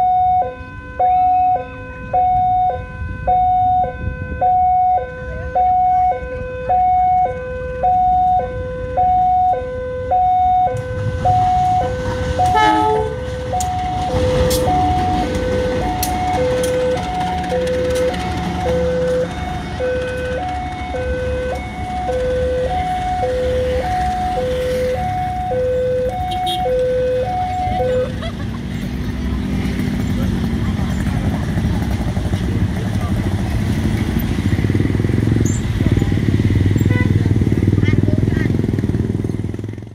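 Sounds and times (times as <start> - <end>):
two-tone electronic warning alarm: 0.0 - 28.2
train rumbling past: 10.7 - 39.9
train wheels clicking on rails: 13.3 - 22.4.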